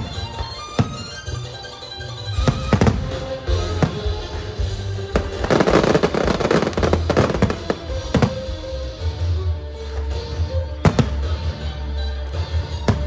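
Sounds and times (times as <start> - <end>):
background music: 0.0 - 13.0
fireworks bangs: 2.4 - 8.6
fireworks crackling: 2.4 - 8.6.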